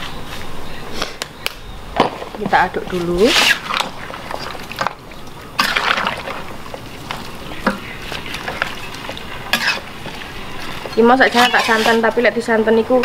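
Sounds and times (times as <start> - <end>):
sauce sloshing in a wok: 2.9 - 12.2
spatula scraping a pan: 3.1 - 12.3.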